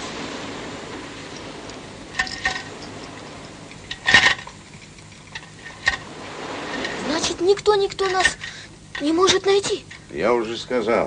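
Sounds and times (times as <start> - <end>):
metal fittings clicking and clanking: 2.1 - 3.1.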